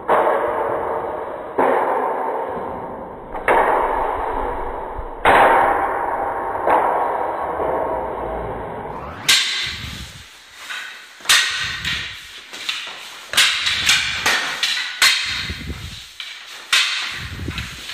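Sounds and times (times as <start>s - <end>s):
wooden staffs clacking: 9.0s - 17.9s.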